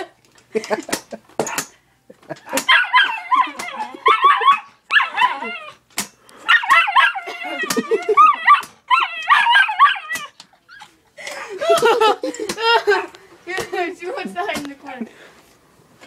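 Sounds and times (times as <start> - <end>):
dog yelping and whining: 2.5 - 11.0.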